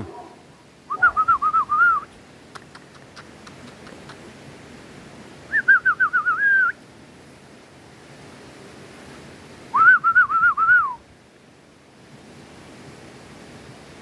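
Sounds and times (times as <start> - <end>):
person whistling for dogs: 0.9 - 2.1, 5.5 - 6.8, 9.8 - 11.0
faint clicks: 2.5 - 4.2.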